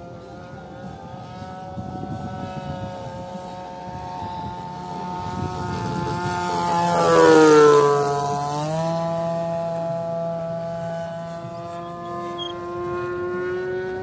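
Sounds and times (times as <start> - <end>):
model airplane motor whine: 0.0 - 14.0.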